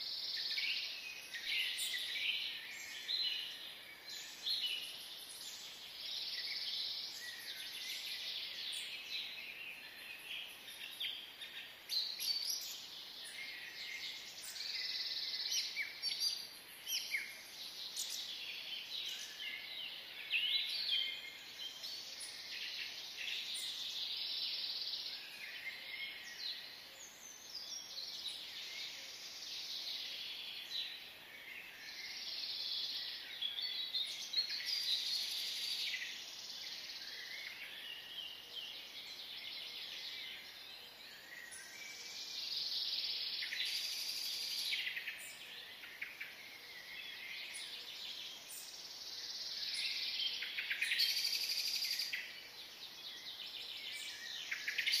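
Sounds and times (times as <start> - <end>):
small birds chirping and twittering: 0.0 - 55.0.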